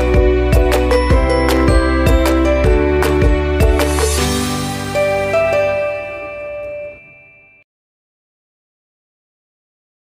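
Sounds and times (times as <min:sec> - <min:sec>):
background music held notes: 0:00.0 - 0:07.6.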